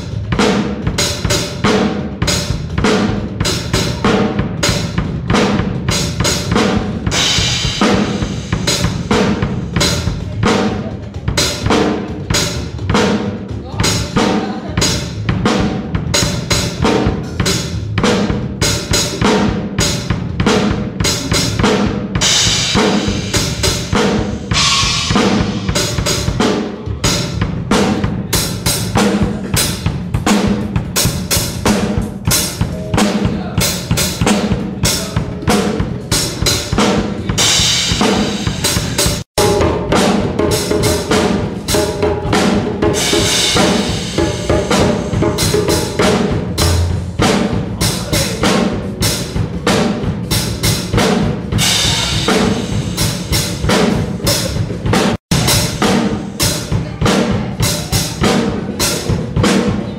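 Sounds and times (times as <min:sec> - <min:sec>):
drum kit playing: 0:00.0 - 0:59.9
cymbal crashes: 0:17.4 - 0:28.0, 0:33.9 - 0:49.9, 0:50.6 - 0:59.2.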